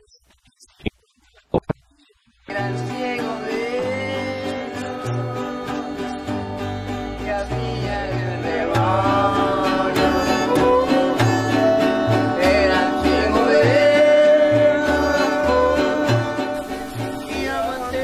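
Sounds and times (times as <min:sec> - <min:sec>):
strummed acoustic guitars: 0:02.4 - 0:18.0
low bass notes: 0:04.1 - 0:16.2
violin melody: 0:05.5 - 0:13.8.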